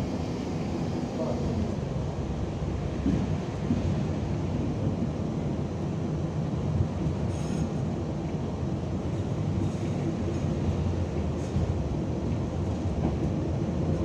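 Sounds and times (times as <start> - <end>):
tram wheels rumbling on rails: 0.0 - 14.0.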